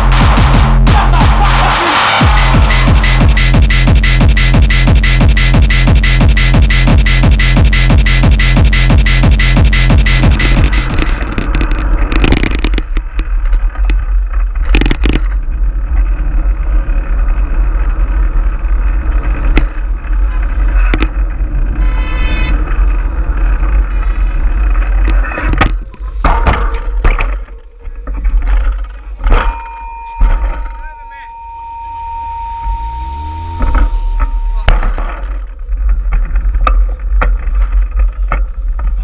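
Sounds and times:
tyre and traffic noise: 0.0 - 39.0
brief high buzz: 30.7 - 34.7.

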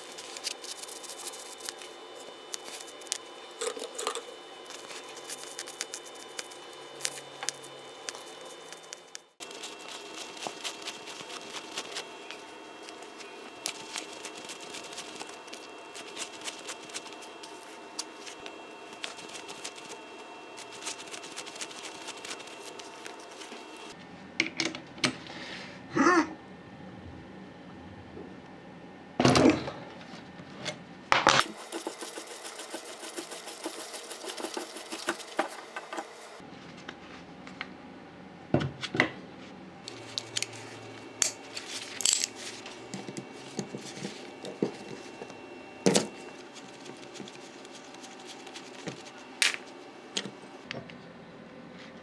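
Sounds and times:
wire brush scraping metal: 31.5 - 36.2.

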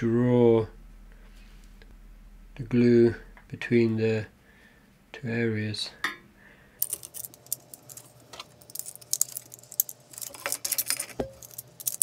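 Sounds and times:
small screws clicking and rattling: 6.8 - 12.0.

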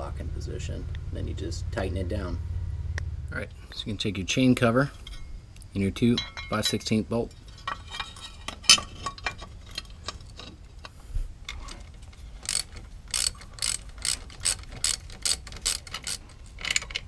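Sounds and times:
ratchet wrench clicking: 12.4 - 17.0.

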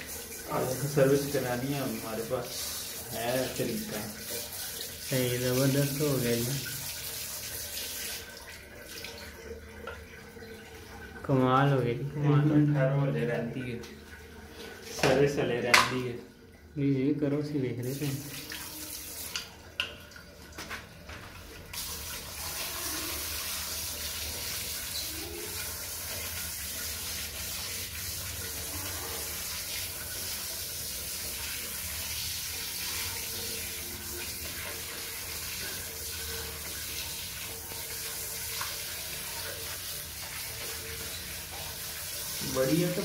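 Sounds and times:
water pouring from hose: 0.0 - 9.6, 17.8 - 19.6, 21.4 - 43.0
water splashing on tiled floor: 0.0 - 11.1, 17.8 - 43.0.

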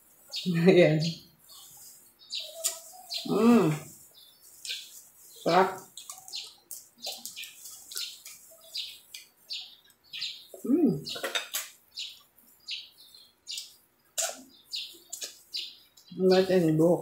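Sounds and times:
person humming: 3.3 - 3.9, 10.6 - 11.1
wet chewing and lip smacking: 5.8 - 10.0, 13.5 - 16.1.

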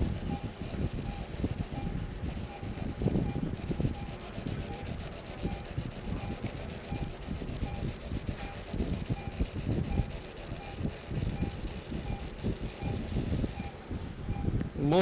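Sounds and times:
faint short beeps: 13.6 - 14.6.

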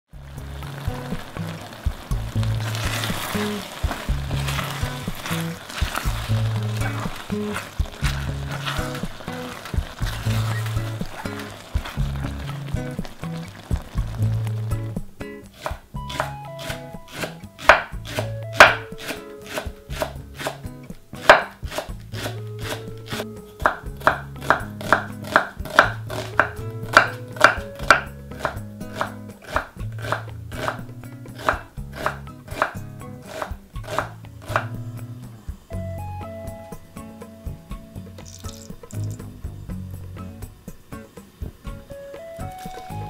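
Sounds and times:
soft background music: 0.1 - 43.0
knife chopping on wooden board: 15.6 - 20.6, 21.2 - 22.9, 23.6 - 30.8, 31.4 - 34.8.

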